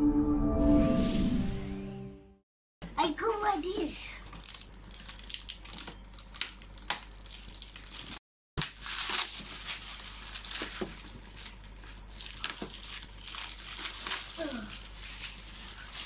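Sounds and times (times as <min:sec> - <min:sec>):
plastic wrapping crinkling and tearing: 0:04.2 - 0:16.0.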